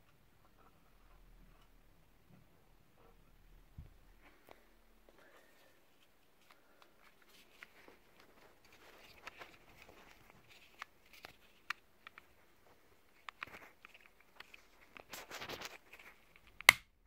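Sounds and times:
faint clicks and light knocks: 5.9 - 16.8.

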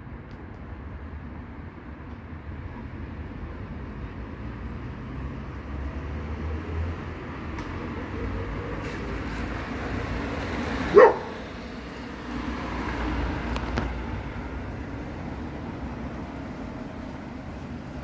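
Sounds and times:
dog barking: 10.9 - 11.4.

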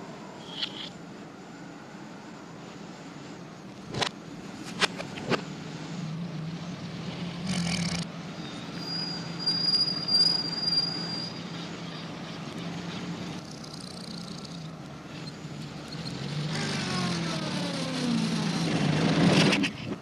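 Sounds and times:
thin high whistle: 8.4 - 11.7.

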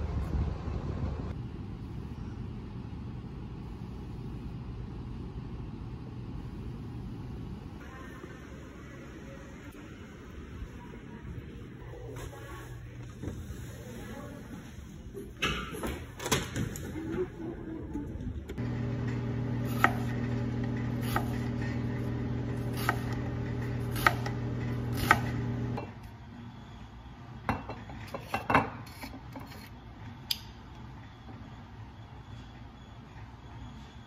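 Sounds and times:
knife slicing onion on board: 23.8 - 25.4.

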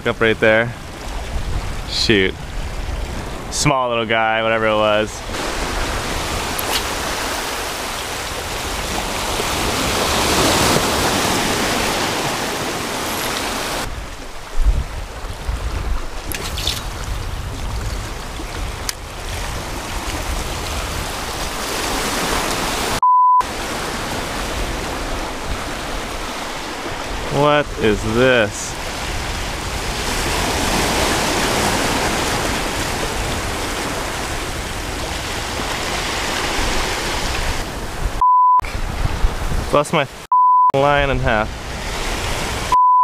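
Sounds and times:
waves washing over rocky shore: 4.4 - 15.4, 16.1 - 37.8
short high-pitched beep: 23.0 - 23.4, 38.2 - 38.7, 40.3 - 40.8, 42.7 - 43.0.

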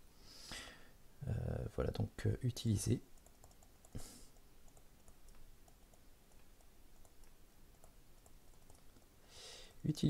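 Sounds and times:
stylus tapping tablet screen: 3.2 - 4.1, 4.7 - 9.1.

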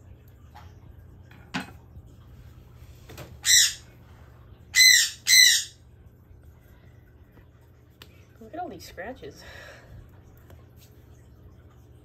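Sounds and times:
bird squawking: 3.4 - 3.9, 4.7 - 5.8.

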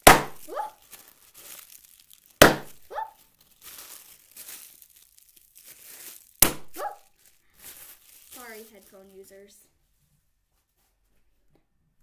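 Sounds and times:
bubble wrap pop: 0.0 - 8.9
bubble wrap crinkling: 0.0 - 10.0.

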